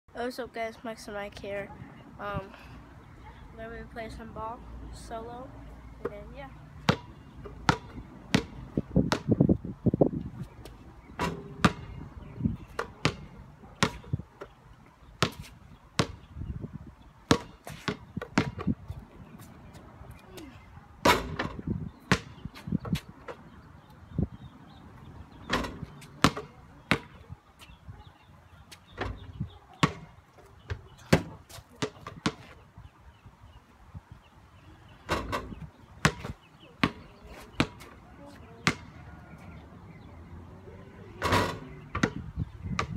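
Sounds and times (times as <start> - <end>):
basketball bouncing on pavement: 6.0 - 19.8, 20.4 - 23.6, 25.4 - 27.8, 28.8 - 32.6, 35.1 - 39.1, 41.2 - 42.9.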